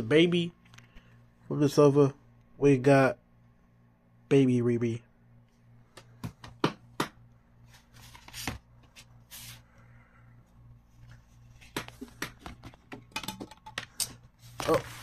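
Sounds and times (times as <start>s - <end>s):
soft paper-like rustling: 14.3s - 15.0s.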